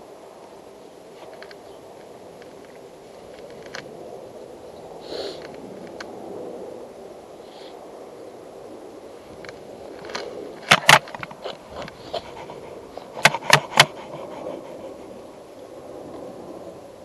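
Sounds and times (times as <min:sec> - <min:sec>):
steady background noise: 0:00.0 - 0:17.0
sharp knocks: 0:13.2 - 0:14.1.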